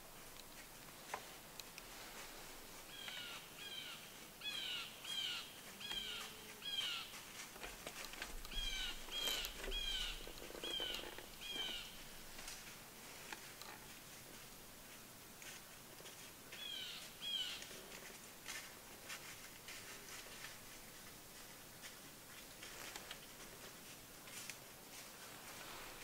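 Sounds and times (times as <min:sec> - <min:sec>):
bird harsh downward calls: 0:08.5 - 0:12.0.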